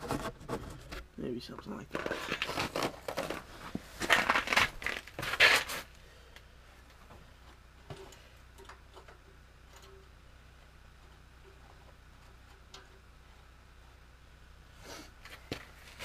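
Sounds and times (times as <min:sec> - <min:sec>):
rustling and scraping handling noise: 0:00.0 - 0:05.9, 0:14.9 - 0:16.0.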